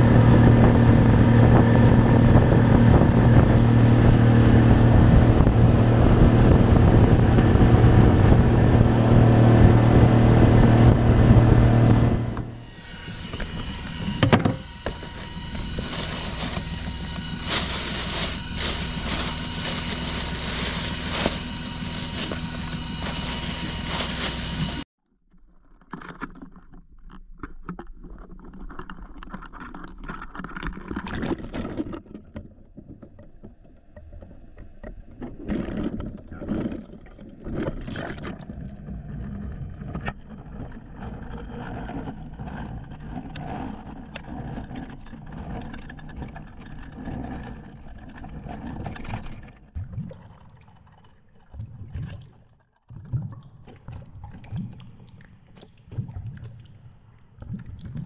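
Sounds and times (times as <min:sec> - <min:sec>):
muffled underwater rushing: 0:00.0 - 0:12.7, 0:15.0 - 0:24.8.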